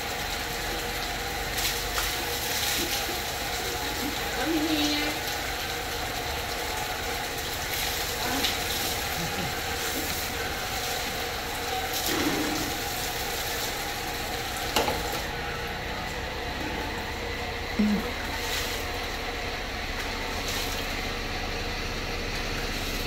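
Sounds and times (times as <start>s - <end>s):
water splashing on a dog: 0.0s - 15.3s, 18.0s - 19.4s, 20.0s - 21.1s
running water rushing: 0.0s - 21.3s.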